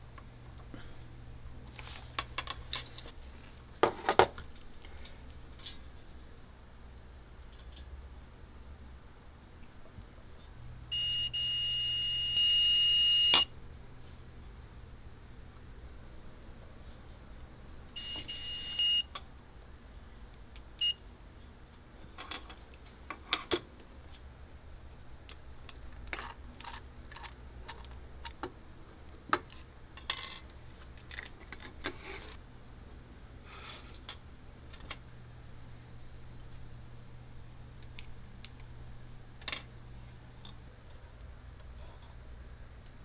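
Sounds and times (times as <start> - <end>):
multimeter beeping: 10.9 - 13.5, 18.0 - 19.1, 20.8 - 21.0.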